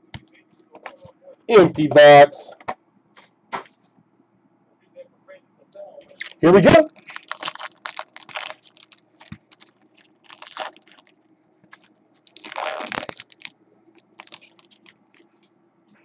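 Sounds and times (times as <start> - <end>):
foil wrapper crinkling: 6.2 - 15.4.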